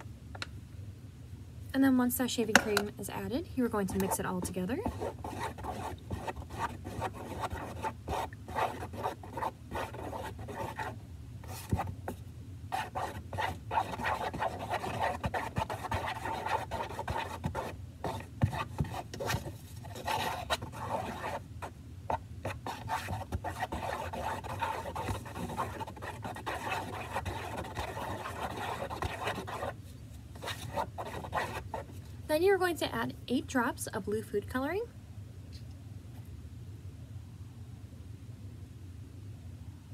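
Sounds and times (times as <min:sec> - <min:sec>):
stick scraping a plastic tub: 0:03.9 - 0:11.9, 0:12.8 - 0:21.4, 0:22.5 - 0:29.8, 0:30.4 - 0:32.0.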